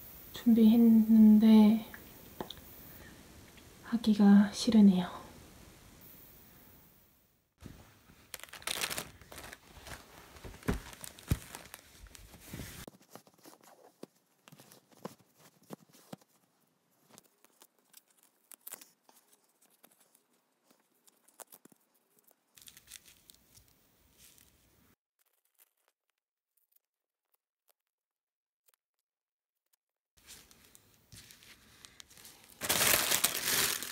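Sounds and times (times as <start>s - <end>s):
rustles and clicks: 7.6s - 16.4s
plastic packaging crinkling: 8.1s - 13.9s, 17.2s - 24.6s, 30.2s - 33.9s.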